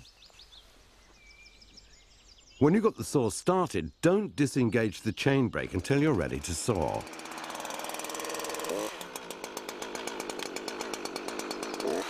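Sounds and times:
chainsaw idling and revving: 5.6s - 12.0s.

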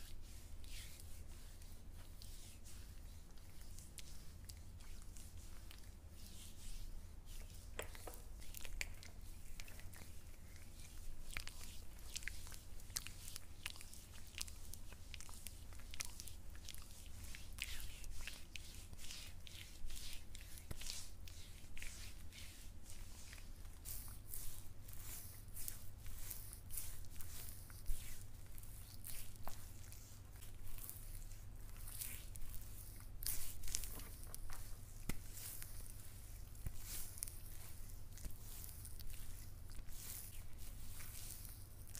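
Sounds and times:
wet rubbing of body scrub: 0.0s - 41.9s.

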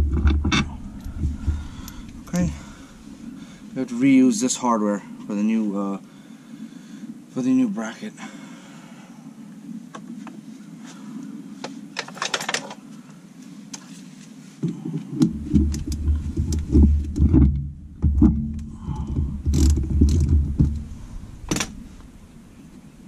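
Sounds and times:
heavy knocks and rubbing: 0.0s - 4.0s, 15.2s - 22.8s.

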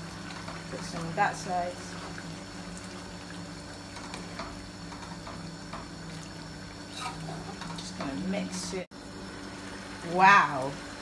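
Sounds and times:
steady low hum: 0.0s - 11.0s
spoon scraping a pan: 6.9s - 8.0s.

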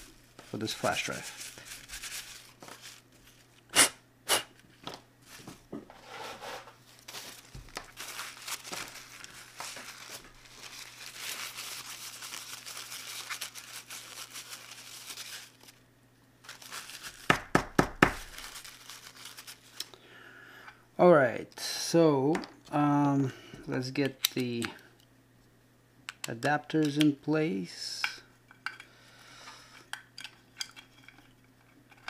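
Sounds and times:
paper tissue rustling: 0.0s - 3.6s, 4.6s - 15.8s, 16.4s - 17.4s, 18.0s - 19.9s.

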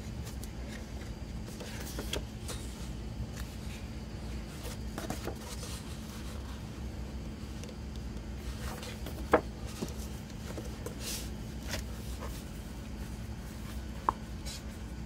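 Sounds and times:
steady low hum: 0.0s - 15.0s
book pages turning: 0.1s - 6.7s, 7.5s - 14.9s.

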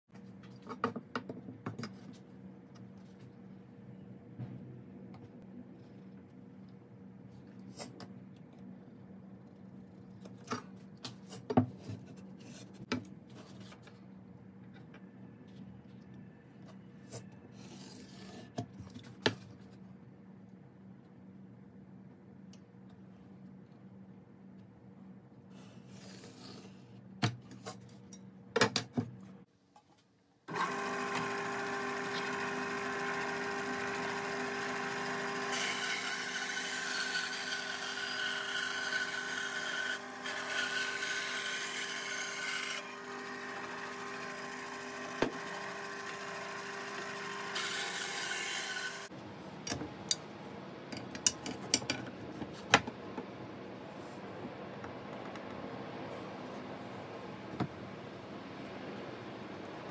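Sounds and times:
electric scroll saw cutting wood: 30.5s - 49.1s.

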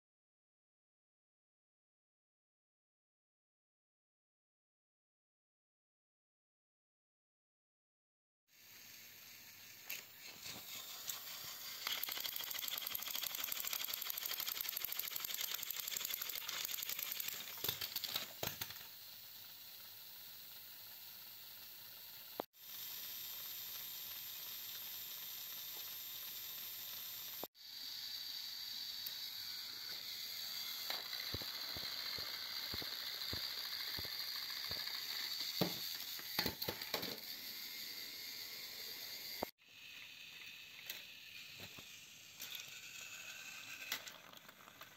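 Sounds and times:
toy train motors whirring: 8.5s - 44.9s
plastic toys clicking and knocking: 9.9s - 19.1s, 30.7s - 38.6s, 40.4s - 44.9s.

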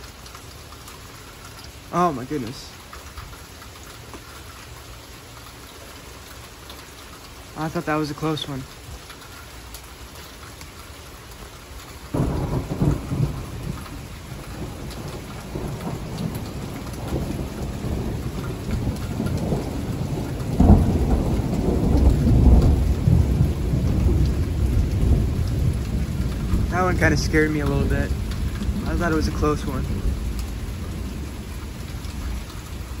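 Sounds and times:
steady rain falling: 0.0s - 33.0s
thunder rumbling: 12.1s - 33.0s.

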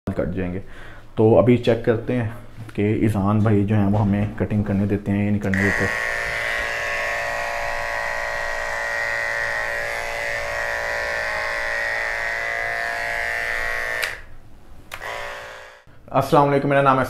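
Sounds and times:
electric hair clipper buzzing: 5.5s - 15.9s.

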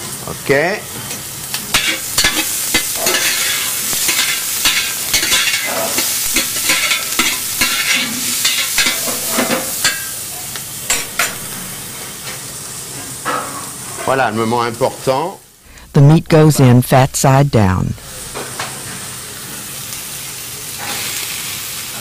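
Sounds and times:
vegetables sizzling in oil: 0.0s - 15.6s, 18.0s - 22.0s
utensil scraping and knocking pot: 1.8s - 10.0s.

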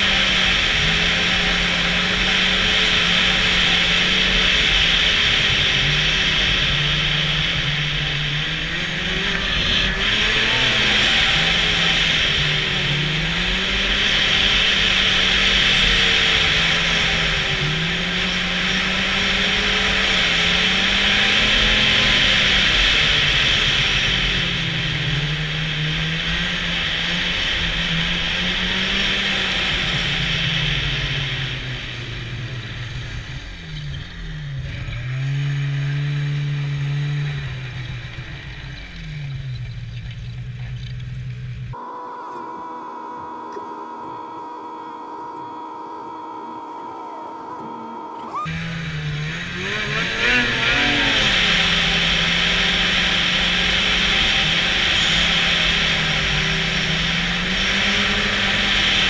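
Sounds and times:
snowmobile engine running: 0.0s - 59.0s
low hum: 37.3s - 53.8s.

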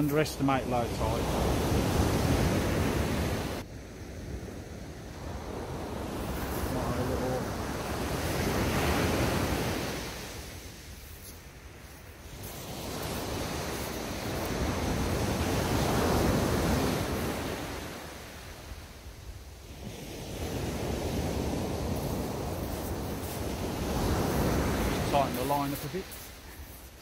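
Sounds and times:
small waves breaking on beach: 0.0s - 27.0s.

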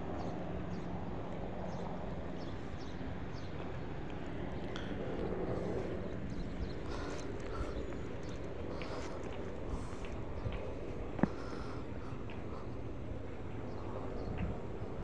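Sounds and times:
low steady drone: 0.0s - 15.0s.

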